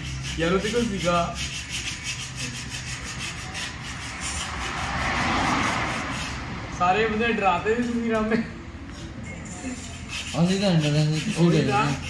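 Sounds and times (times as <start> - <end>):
hand rubbing metal wheel rim: 0.0 - 6.6, 9.6 - 12.0.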